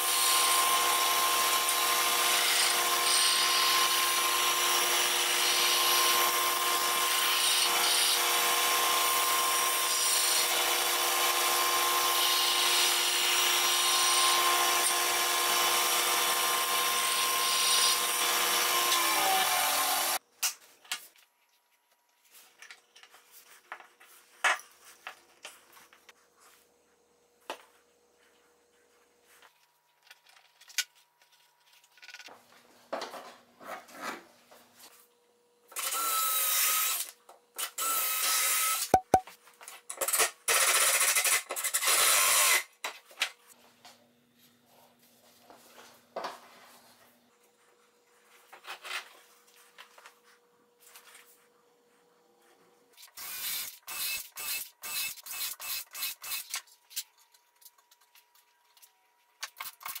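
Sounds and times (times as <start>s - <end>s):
power drill running: 53.1s - 56.4s.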